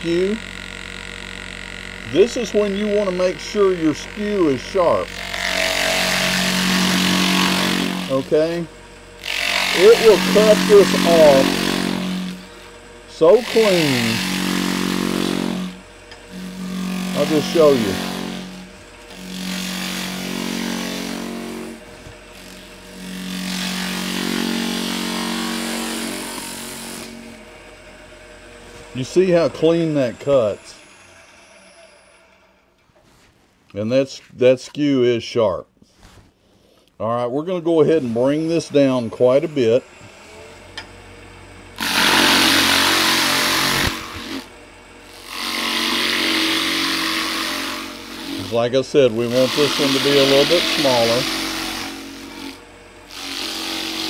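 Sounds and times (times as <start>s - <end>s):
chisel cutting foam: 0.0s - 27.4s, 41.8s - 44.5s, 45.1s - 54.0s
lathe buzzing hum: 0.0s - 32.8s, 37.5s - 54.0s.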